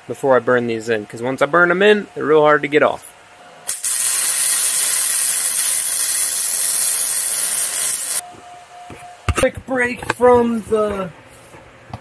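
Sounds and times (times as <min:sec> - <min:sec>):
welder hissing: 0:03.7 - 0:08.2.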